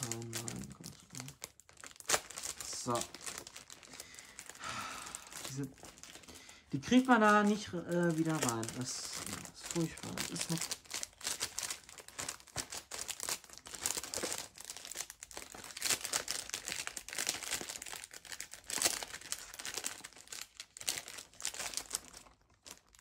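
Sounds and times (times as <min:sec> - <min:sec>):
plastic packaging crinkling: 0:00.0 - 0:23.0.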